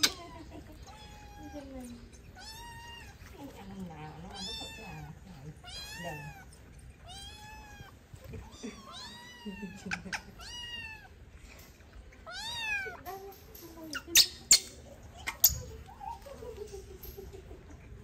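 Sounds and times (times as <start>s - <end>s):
kittens meowing: 0.0s - 11.3s, 12.2s - 13.0s.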